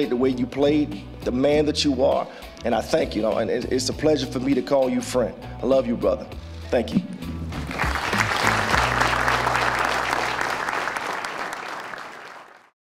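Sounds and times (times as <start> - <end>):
soft background music: 0.0 - 10.8
audience applauding: 7.6 - 12.8.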